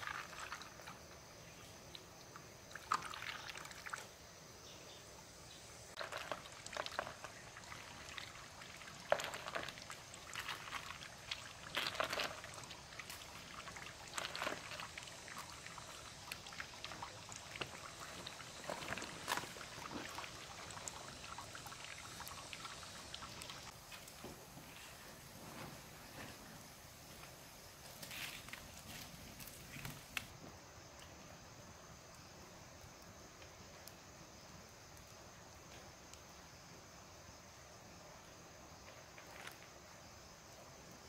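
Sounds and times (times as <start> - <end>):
water trickling along bamboo: 0.0 - 4.3, 5.8 - 25.4, 26.6 - 30.4.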